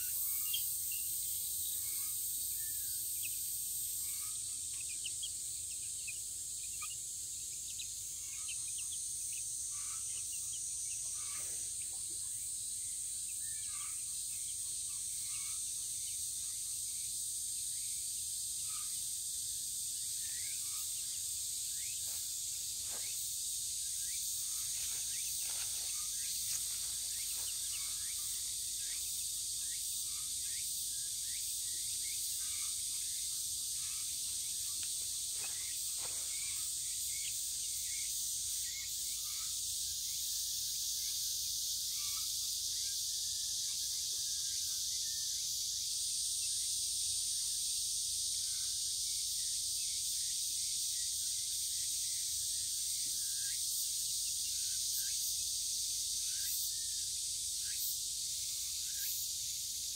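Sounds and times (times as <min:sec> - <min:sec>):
cicadas droning: 0:00.0 - 0:59.9
chicks peeping: 0:03.1 - 0:12.2, 0:24.1 - 0:29.2.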